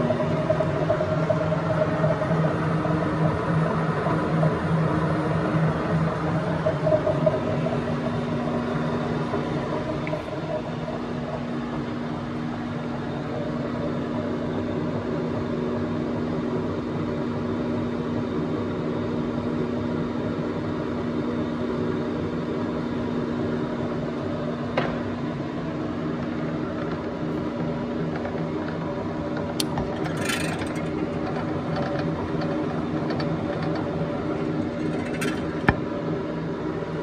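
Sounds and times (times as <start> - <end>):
machine humming: 29.6 - 36.5.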